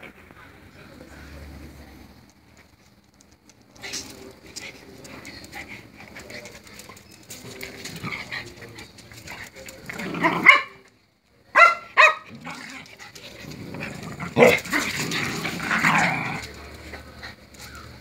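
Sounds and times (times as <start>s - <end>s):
dogs growling while play-fighting: 7.7s - 10.5s, 12.3s - 18.0s
short high dog barks: 11.6s - 12.3s.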